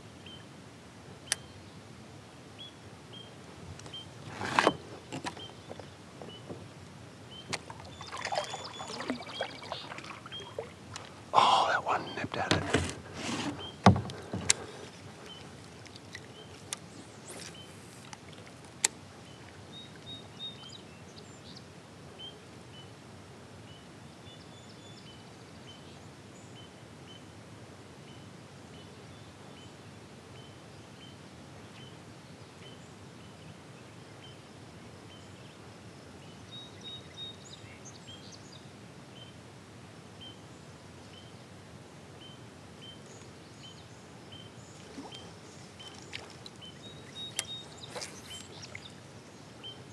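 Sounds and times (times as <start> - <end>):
wind: 0.0 - 49.9
rippling water: 7.4 - 20.6, 44.4 - 49.9
small bird chirping: 42.9 - 49.0.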